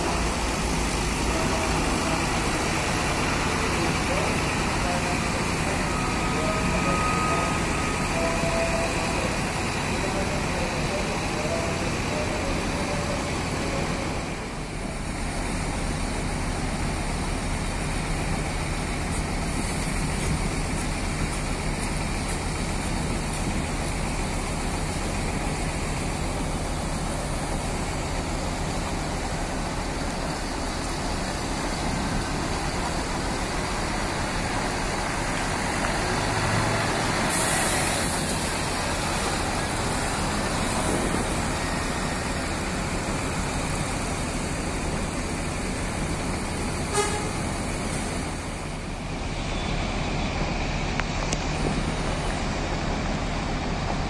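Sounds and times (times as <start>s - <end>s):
bus engine rumbling: 0.0s - 54.0s.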